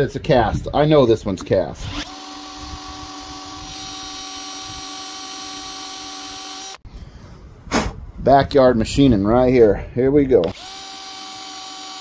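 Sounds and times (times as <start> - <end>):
power tool whining on cast iron: 1.8 - 6.8, 10.4 - 12.0.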